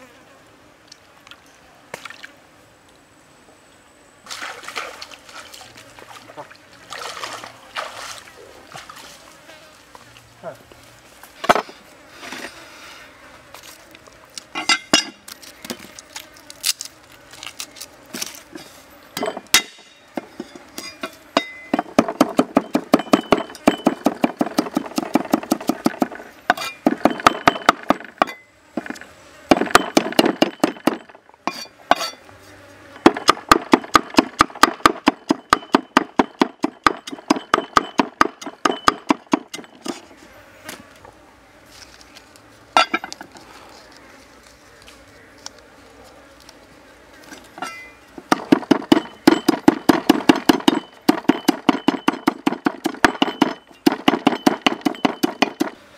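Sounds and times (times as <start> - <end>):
cleaver chopping on wooden block: 21.4 - 28.9, 33.0 - 39.8, 48.3 - 55.8.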